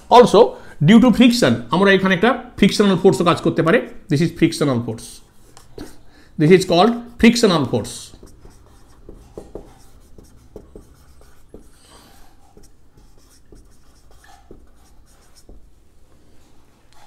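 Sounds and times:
pen scratching on paper: 8.1 - 15.7.

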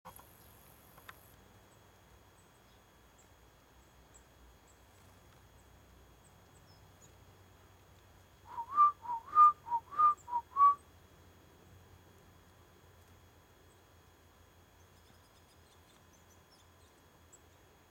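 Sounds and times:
person whistling: 8.5 - 10.8.

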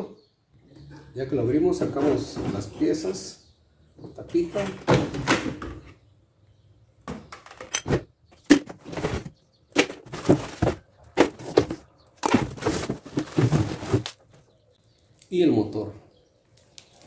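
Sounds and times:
cardboard scraping: 8.5 - 14.2.

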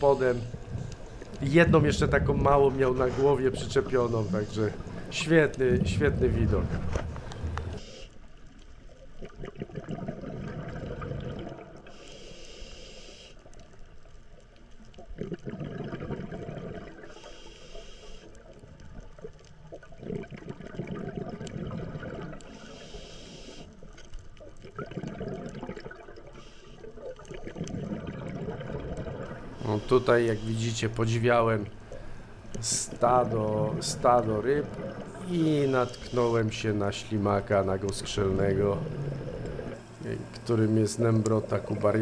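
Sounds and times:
exhaust bubbles burbling: 0.0 - 7.8, 9.2 - 11.8, 15.0 - 17.0, 19.8 - 22.5, 24.6 - 26.4, 27.2 - 42.0.

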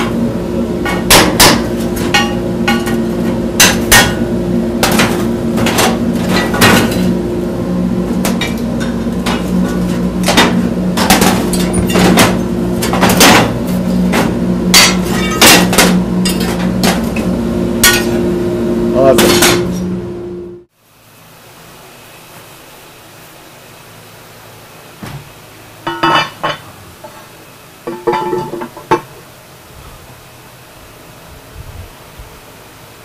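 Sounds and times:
steady machine hum: 0.0 - 33.0
hammer striking steel plate: 0.8 - 3.0, 3.6 - 7.0.

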